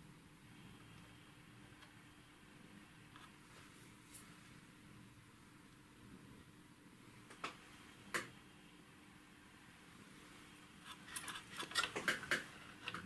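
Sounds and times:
small metal clicks and rattles: 10.8 - 13.0.

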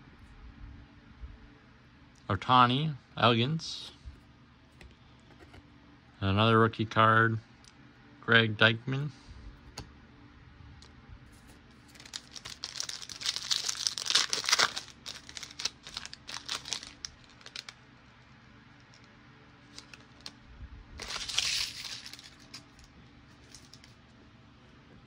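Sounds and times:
foil wrapper tearing and crinkling: 11.8 - 17.8, 19.7 - 20.4, 21.0 - 24.0.

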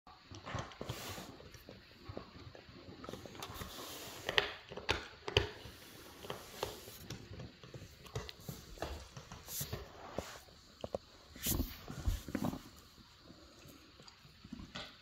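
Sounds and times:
dog gnawing on a hard chew: 0.1 - 10.2.

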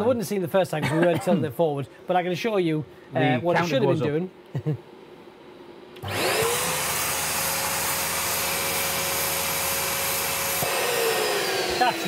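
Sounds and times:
balloon inflator motor whining: 6.0 - 12.0.

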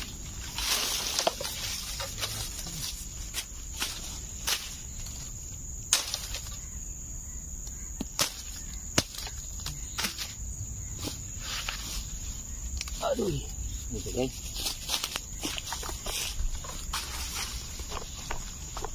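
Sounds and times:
insects droning: 0.0 - 18.9
machete striking dry bamboo: 5.9 - 6.6, 8.0 - 10.4.

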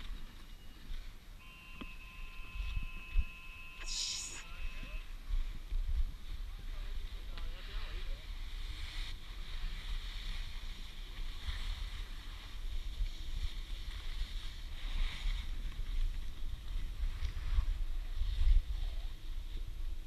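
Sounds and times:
skis scraping over snow: 6.8 - 18.8.

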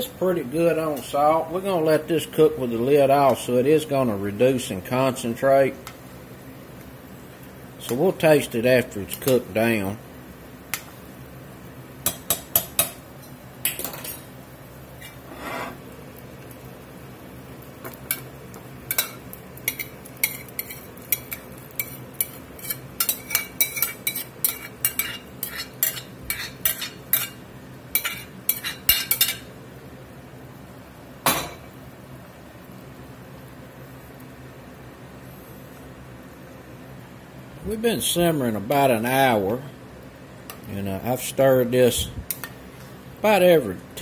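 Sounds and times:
metal spoon scraping a pot: 15.0 - 15.8, 19.7 - 27.4.

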